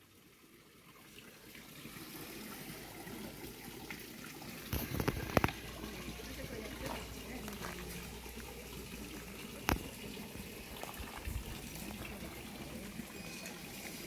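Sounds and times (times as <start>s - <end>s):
pond water trickling and lapping: 0.0s - 14.0s
water splashes: 1.0s - 14.0s
fish gulping at water surface: 4.6s - 6.0s, 8.0s - 12.5s.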